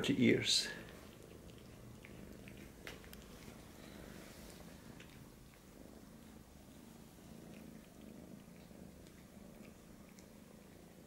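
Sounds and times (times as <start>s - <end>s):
cat purring: 0.0s - 11.0s
cat licking fur: 0.6s - 11.0s.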